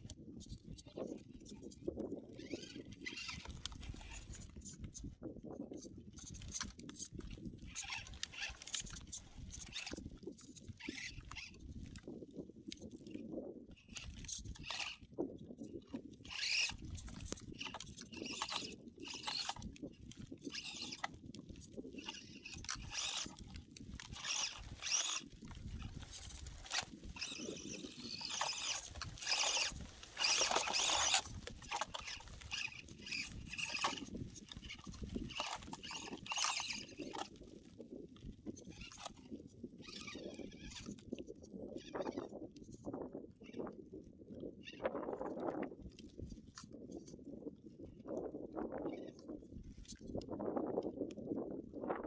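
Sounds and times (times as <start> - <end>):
toy car electric motor whining: 0.4 - 5.1, 6.2 - 42.3.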